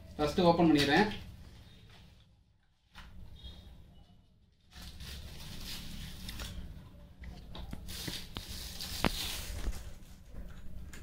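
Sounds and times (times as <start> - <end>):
cardboard rustling and scraping: 7.8 - 10.2.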